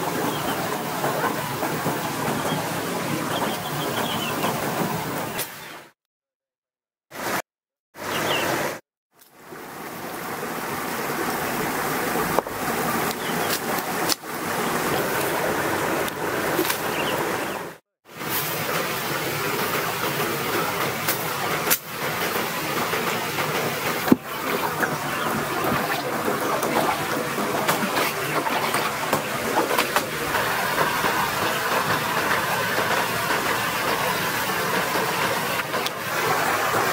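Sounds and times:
stream rushing over rocks: 9.4s - 36.9s.

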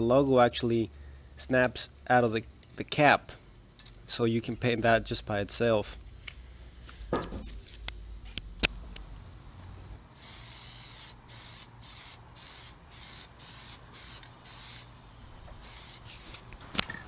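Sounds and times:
aerosol spray hissing bursts: 10.2s - 16.5s.

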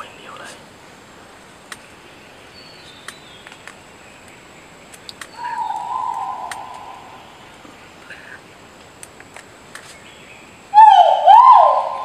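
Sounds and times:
faint clicks: 3.0s - 6.8s
bird giving long call: 5.3s - 7.5s, 10.7s - 12.0s.

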